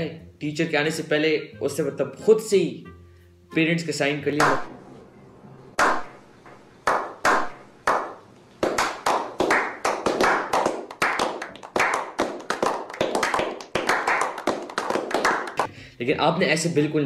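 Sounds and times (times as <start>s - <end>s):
men slow clapping: 6.8s - 15.8s.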